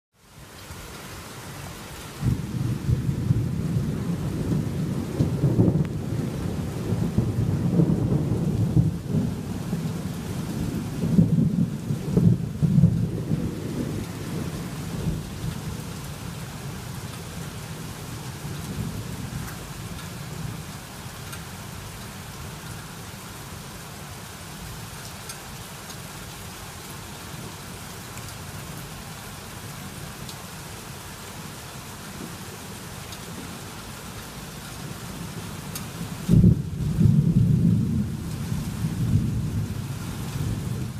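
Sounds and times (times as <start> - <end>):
steady rain: 0.1 - 40.9
thunderclap: 2.2 - 15.6, 36.3 - 39.8
thunder rumble: 2.2 - 16.4, 35.9 - 40.9.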